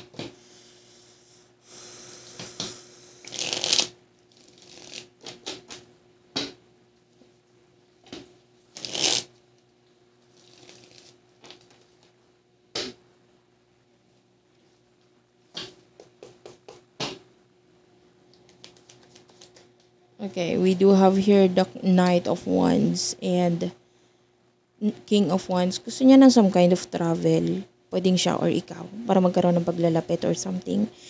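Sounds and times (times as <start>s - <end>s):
cards shuffling: 3.3s - 5.8s, 8.1s - 9.3s, 10.3s - 12.1s, 18.5s - 19.7s.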